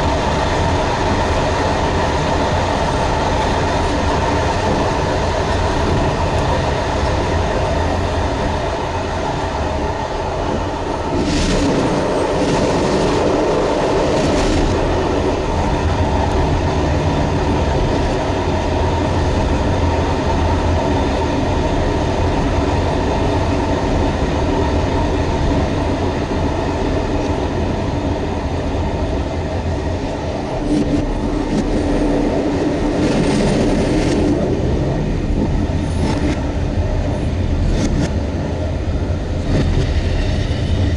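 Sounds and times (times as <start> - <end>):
train running drone: 0.0 - 40.9
train wheel clatter: 28.6 - 40.9.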